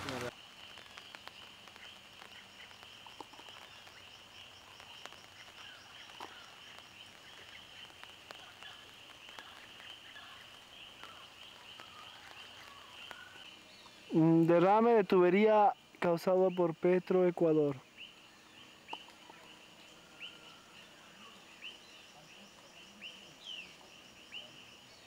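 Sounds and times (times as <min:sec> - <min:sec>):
frogs and insects trilling: 0:00.0 - 0:25.0.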